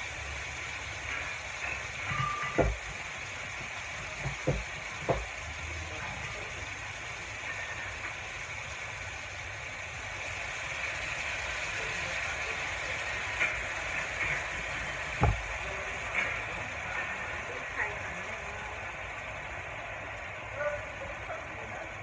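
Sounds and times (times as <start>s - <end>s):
meat sizzling in a wok: 0.0s - 22.0s
dull thump: 15.2s - 15.4s.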